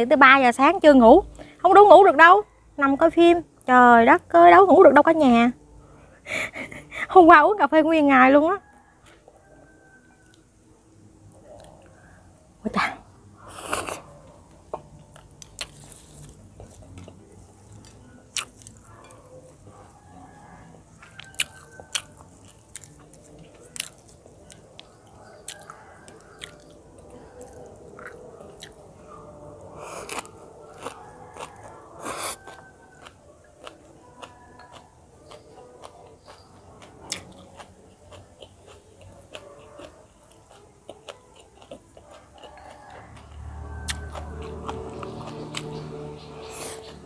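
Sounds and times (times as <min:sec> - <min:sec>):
person chewing food: 0:13.5 - 0:19.7, 0:21.0 - 0:28.9, 0:29.5 - 0:47.0.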